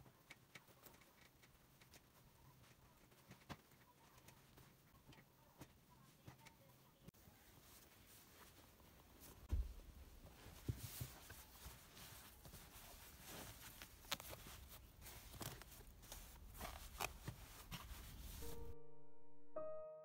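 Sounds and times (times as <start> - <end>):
fabric rustling: 7.3 - 18.6
piano music: 18.4 - 20.0.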